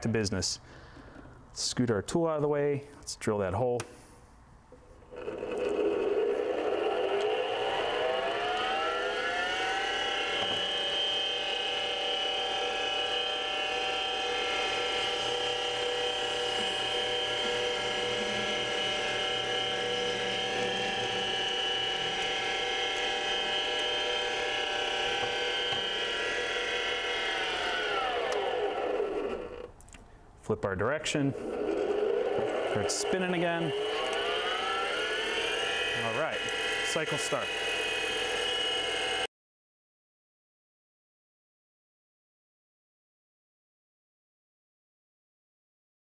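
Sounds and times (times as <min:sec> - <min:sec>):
drill bit boring into resin: 0:05.1 - 0:29.7, 0:31.1 - 0:39.3
lathe spindle whining: 0:05.1 - 0:29.7, 0:31.3 - 0:39.3.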